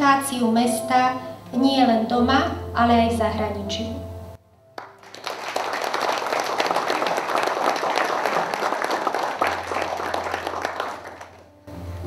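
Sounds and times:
crowd applauding: 4.8 - 11.6.

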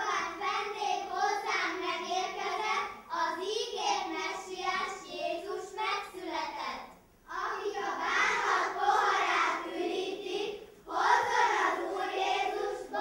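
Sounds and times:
children singing together: 7.3 - 13.0.

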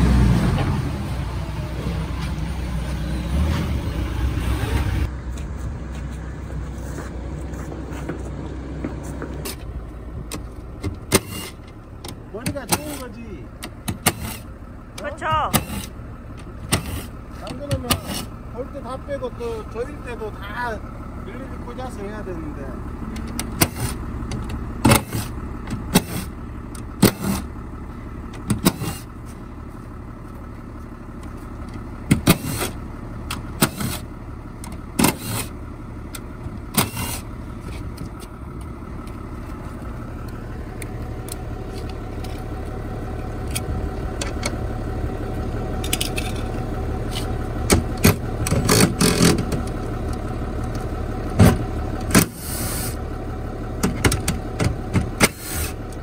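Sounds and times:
steady low rumble: 0.0 - 55.2
sharp metallic clinks and knocks: 45.8 - 47.3.

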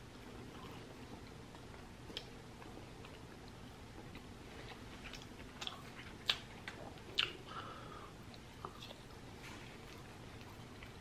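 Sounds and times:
chewing food: 0.0 - 7.6, 8.2 - 11.0
wet mouth clicks: 5.1 - 7.4.

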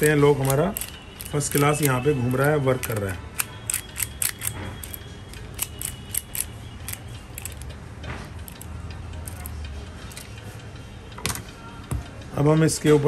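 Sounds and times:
key and lock clicking: 0.0 - 7.7, 8.3 - 10.3.

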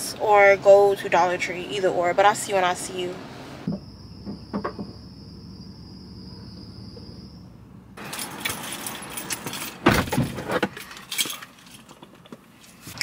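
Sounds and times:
heavy thump: 3.6 - 5.1
keys jangling: 8.0 - 12.4
small objects clinking and rustling: 8.0 - 13.0.

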